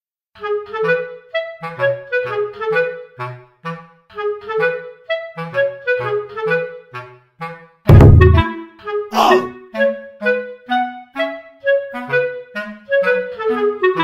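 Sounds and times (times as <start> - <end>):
light tune with bass line: 7.9 - 8.5.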